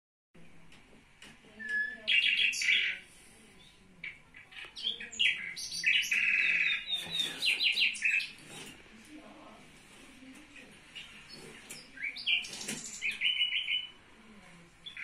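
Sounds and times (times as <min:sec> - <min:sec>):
bird chirps and trills from a phone: 0:01.6 - 0:03.0, 0:03.6 - 0:08.4, 0:11.0 - 0:14.0
budgerigar chirping: 0:01.7 - 0:03.0, 0:04.0 - 0:08.4, 0:11.0 - 0:14.0.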